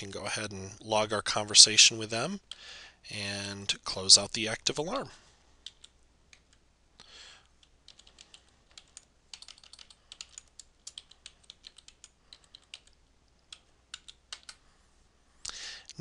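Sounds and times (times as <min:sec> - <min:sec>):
keyboard typing: 0:05.6 - 0:06.6, 0:07.5 - 0:14.6.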